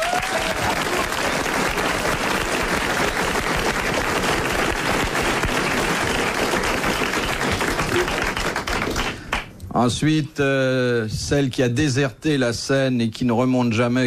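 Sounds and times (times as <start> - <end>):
studio audience applauding: 0.0 - 9.5.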